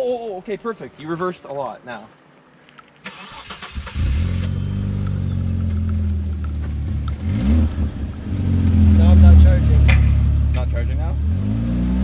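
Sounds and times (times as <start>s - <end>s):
car engine running: 4.0s - 11.4s.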